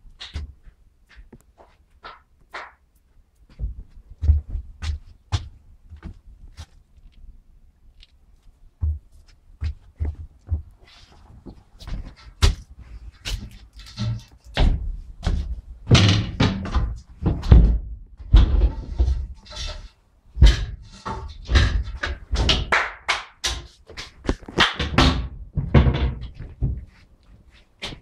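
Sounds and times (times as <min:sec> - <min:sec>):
footsteps on steel floor: 0:00.1 - 0:07.2, 0:08.0 - 0:19.8, 0:25.5 - 0:28.0.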